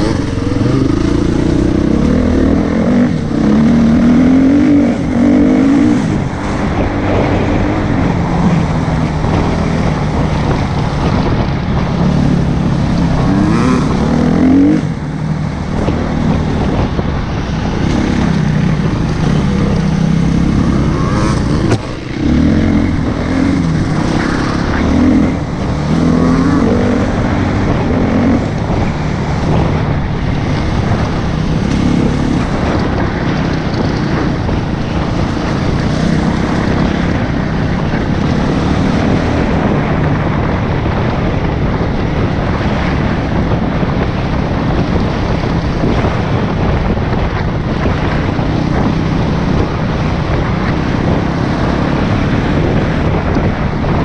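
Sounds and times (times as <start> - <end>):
dirt bike engine revving: 0.0 - 6.1, 12.0 - 15.2, 17.6 - 28.8.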